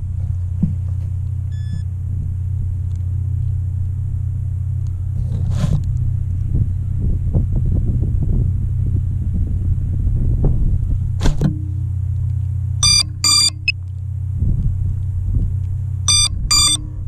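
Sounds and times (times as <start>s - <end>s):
short beep: 1.5s - 1.8s, 12.8s - 13.7s, 16.1s - 16.9s.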